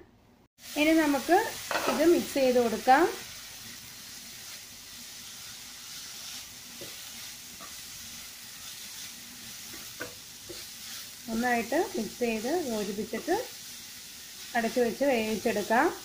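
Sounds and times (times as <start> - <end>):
leaves sizzling in frying pan: 0.6 - 16.0
spatula tapping pan: 6.8 - 7.9, 9.6 - 10.7.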